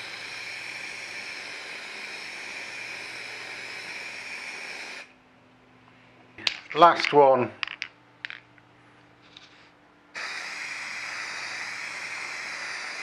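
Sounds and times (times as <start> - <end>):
aerosol can spraying hiss: 0.0 - 5.1, 10.2 - 13.0.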